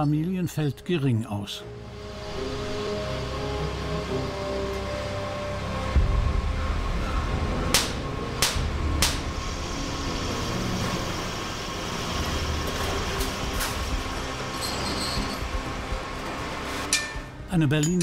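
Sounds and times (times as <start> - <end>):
machinery rumbling: 1.6 - 18.0
sharp metallic clanks: 16.8 - 18.0.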